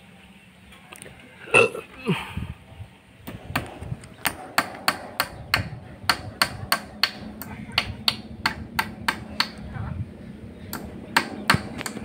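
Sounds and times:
hammer striking nail into wood: 0:03.3 - 0:09.6, 0:10.7 - 0:12.0.

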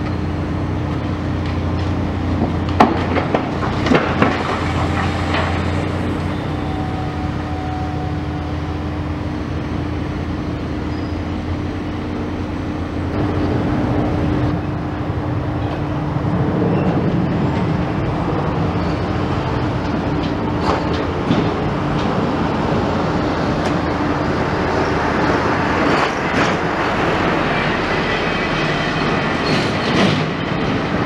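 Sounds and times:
diesel engine droning: 0:00.0 - 0:31.0
concrete and metal cracking: 0:02.6 - 0:06.0.

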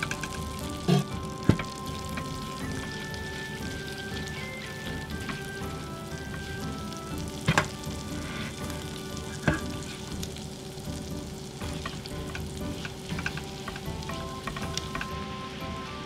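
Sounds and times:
garlic sizzling in butter: 0:00.0 - 0:16.0
spatula clacking against pan: 0:11.7 - 0:15.1.

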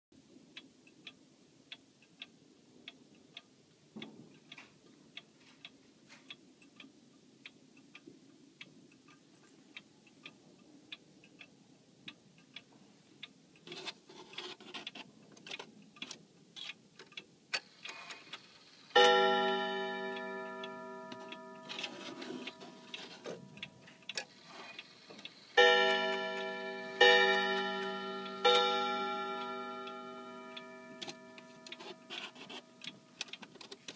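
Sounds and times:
wall clock ticking: 0:00.4 - 0:33.9
clicks of clock hands turning: 0:12.1 - 0:33.9
clock gong strikes: 0:19.0 - 0:23.4, 0:25.6 - 0:32.5.

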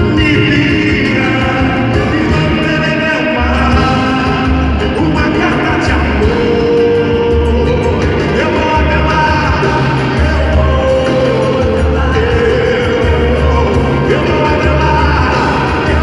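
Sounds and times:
live band playing a love song: 0:00.0 - 0:16.0
person singing: 0:00.0 - 0:16.0
steady bass beat: 0:03.5 - 0:16.0.

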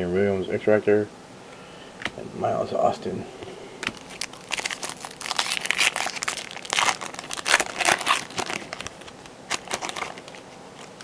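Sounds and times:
foil wrapper tearing and crinkling: 0:03.8 - 0:11.0.

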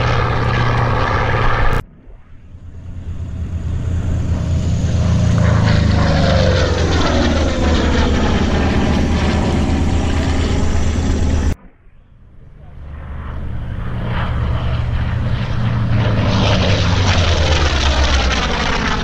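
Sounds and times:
propeller aircraft drone: 0:00.0 - 0:19.0.

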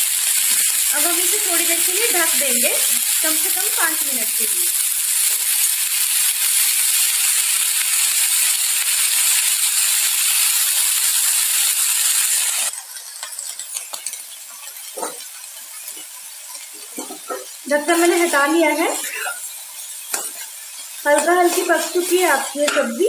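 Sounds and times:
vegetables sizzling in hot oil: 0:00.0 - 0:23.0.

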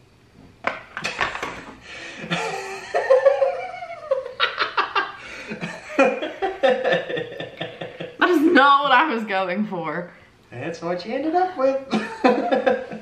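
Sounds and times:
people laughing: 0:02.0 - 0:08.7, 0:11.9 - 0:13.0.

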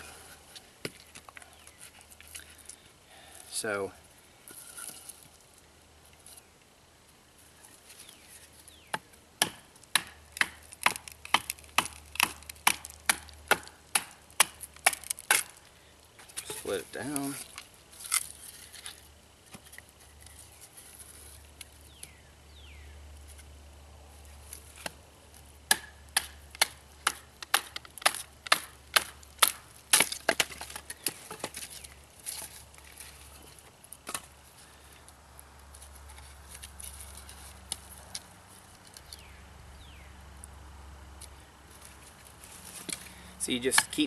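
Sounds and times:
baton striking knife on wood: 0:08.9 - 0:15.5, 0:25.7 - 0:31.5.

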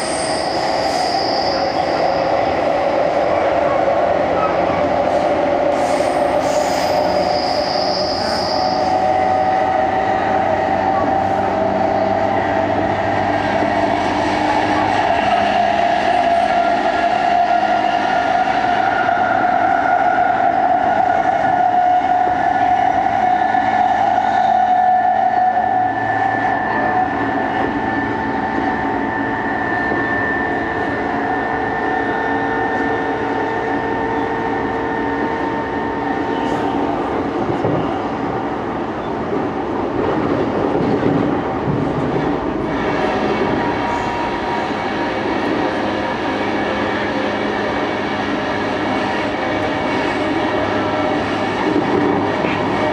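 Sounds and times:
brief high squeal: 0:00.0 - 0:02.2, 0:05.8 - 0:09.0
train wheels rumbling on rail: 0:00.0 - 0:52.9.

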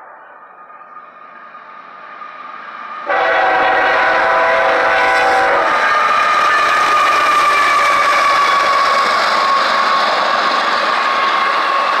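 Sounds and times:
train rolling on rails: 0:00.0 - 0:12.0
locomotive air horn: 0:03.0 - 0:09.6.

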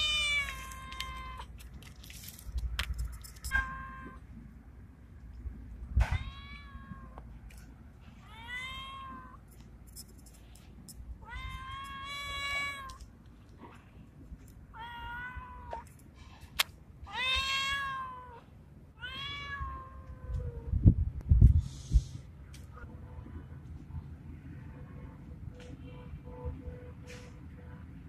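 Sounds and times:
cat meowing: 0:00.0 - 0:01.5, 0:06.0 - 0:07.2, 0:08.2 - 0:09.4, 0:11.2 - 0:13.0, 0:14.7 - 0:15.9, 0:17.1 - 0:18.4, 0:19.0 - 0:20.6.

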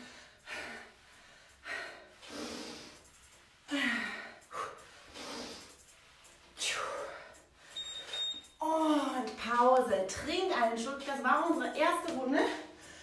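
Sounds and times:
woman breathing hard: 0:00.0 - 0:08.3.

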